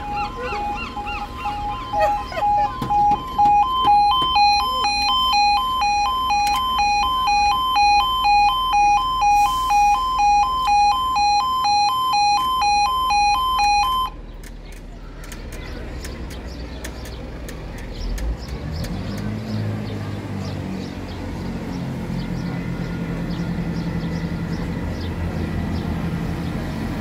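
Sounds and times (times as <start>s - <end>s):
birds calling: 0.0s - 5.2s
electronic warning alarm: 0.0s - 14.2s.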